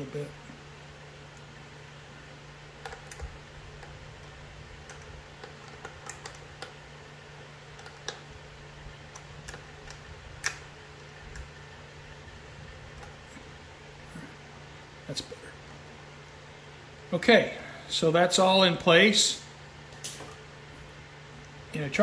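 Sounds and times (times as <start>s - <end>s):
steady low hum: 0.0s - 22.0s
socket ratchet clicking: 9.1s - 10.7s.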